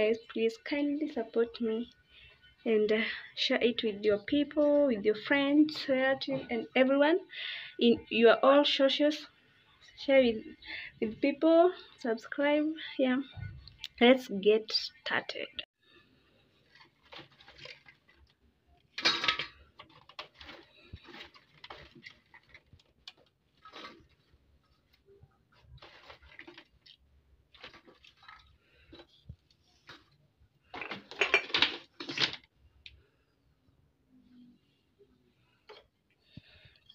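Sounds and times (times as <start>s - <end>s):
pea pods rustling and clattering: 16.4s - 32.5s.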